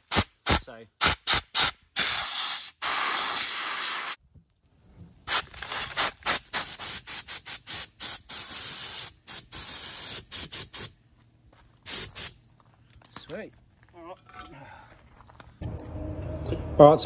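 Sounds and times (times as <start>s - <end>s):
air blow gun hissing: 0.0s - 4.2s, 6.0s - 11.0s, 11.9s - 12.4s.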